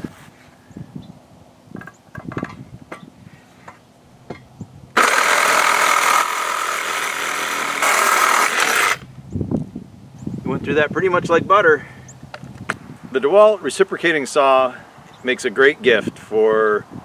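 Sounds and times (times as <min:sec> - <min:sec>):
reciprocating saw cutting steel: 0:05.0 - 0:09.1.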